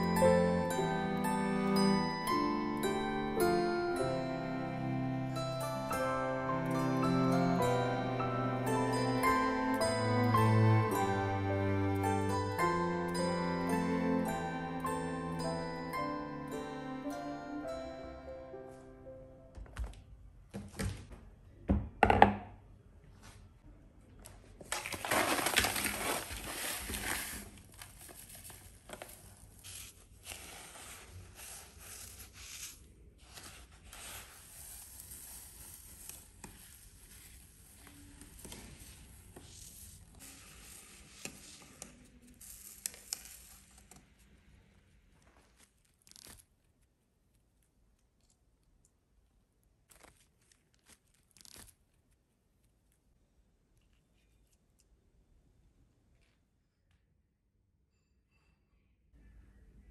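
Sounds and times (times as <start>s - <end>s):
salt grains pouring: 34.1s - 37.3s, 42.4s - 43.7s.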